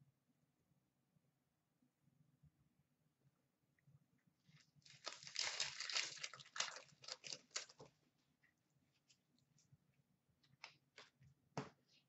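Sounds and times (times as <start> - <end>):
foil wrapper crinkling and tearing: 4.9 - 7.9.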